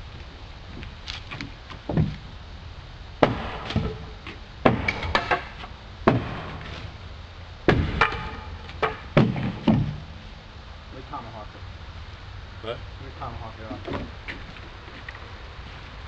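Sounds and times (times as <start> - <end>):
tool striking wooden railing: 3.2 - 6.8, 7.7 - 10.1.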